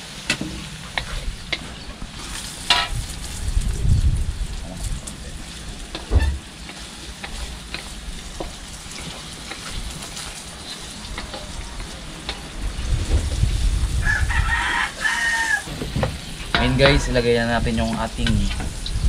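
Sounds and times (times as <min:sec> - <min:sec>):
food sizzling in hot oil: 0:00.0 - 0:19.0
low rumble: 0:01.2 - 0:06.5, 0:11.5 - 0:15.0
spatula scraping and clicking: 0:05.9 - 0:12.5
rooster crowing: 0:14.0 - 0:15.8.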